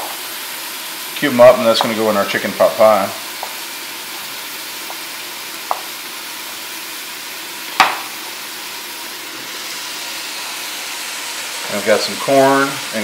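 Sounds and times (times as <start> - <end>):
food sizzling in a pan: 0.0 - 13.0
knife tapping cutting board: 1.8 - 2.0, 5.7 - 5.9, 7.8 - 8.1.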